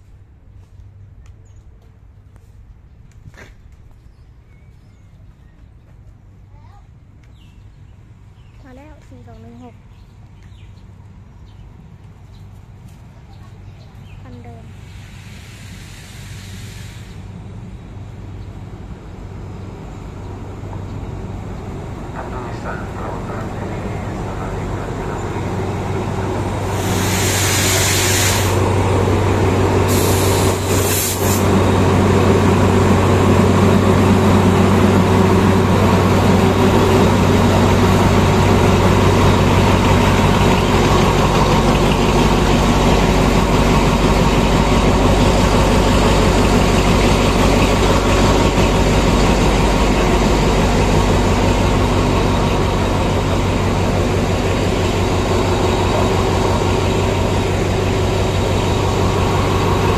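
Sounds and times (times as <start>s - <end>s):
locomotive engine hum: 0.0s - 59.9s
air brakes hissing: 14.8s - 17.3s, 26.6s - 28.6s, 29.9s - 31.5s.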